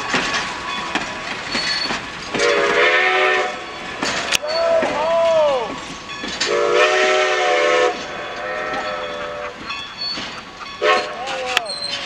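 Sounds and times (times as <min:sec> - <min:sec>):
train coaches rolling on rails: 0:00.0 - 0:12.0
steam whistle blowing: 0:02.4 - 0:03.7, 0:06.4 - 0:09.6, 0:10.8 - 0:11.2.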